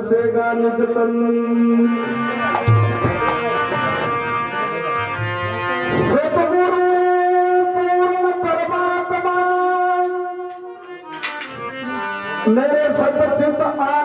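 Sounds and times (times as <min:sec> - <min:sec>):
harmonium chords: 0:00.0 - 0:14.0.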